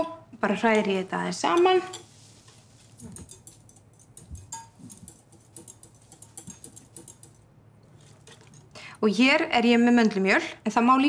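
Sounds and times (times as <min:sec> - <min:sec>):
whisk clicking against glass bowl: 0:03.0 - 0:07.5.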